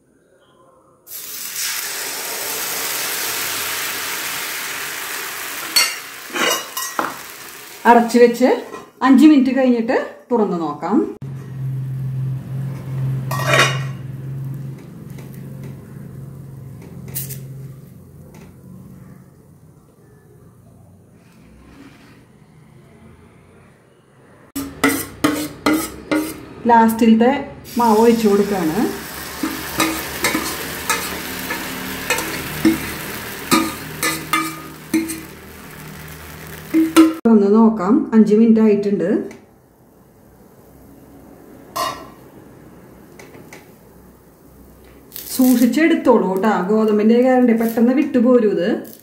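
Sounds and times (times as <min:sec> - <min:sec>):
steady sizzle: 0:01.1 - 0:08.6, 0:11.4 - 0:18.6, 0:27.7 - 0:37.3, 0:39.6 - 0:48.2, 0:48.8 - 0:49.0
metal lid clatter and scrape: 0:13.3 - 0:14.0, 0:24.8 - 0:26.4, 0:33.5 - 0:35.3
spatula scraping pan: 0:21.2 - 0:22.3, 0:24.6 - 0:26.5, 0:29.0 - 0:37.2.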